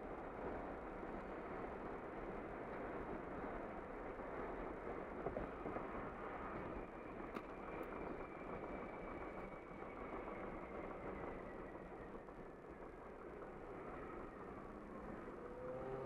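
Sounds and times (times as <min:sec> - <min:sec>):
road and tyre noise: 0:00.0 - 0:16.0
car engine hum: 0:13.5 - 0:16.0.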